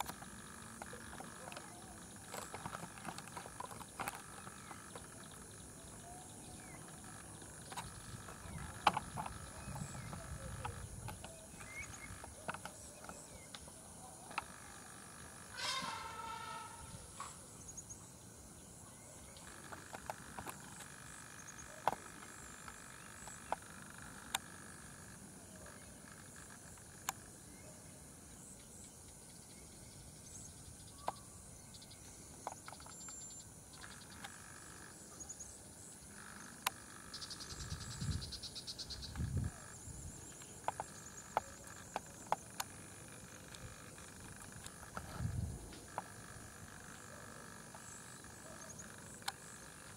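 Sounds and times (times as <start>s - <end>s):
insects droning: 0.0s - 49.9s
loud falling animal call: 15.5s - 17.4s.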